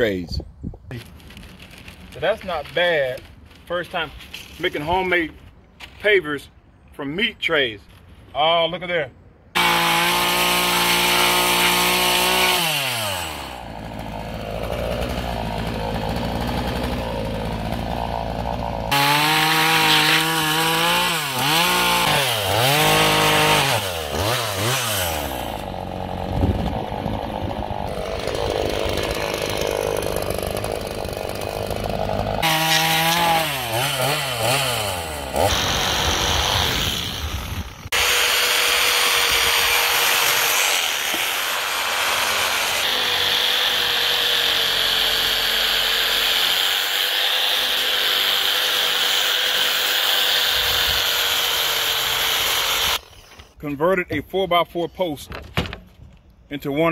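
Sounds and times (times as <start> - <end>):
chainsaw cutting timber: 9.5 - 53.3
reciprocating saw: 9.6 - 53.3.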